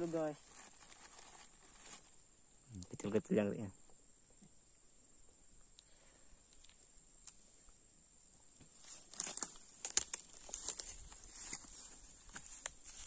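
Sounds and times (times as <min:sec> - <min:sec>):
crackles and rustles: 0:00.0 - 0:02.2, 0:08.6 - 0:13.0
high-pitched insect hum: 0:00.0 - 0:13.0.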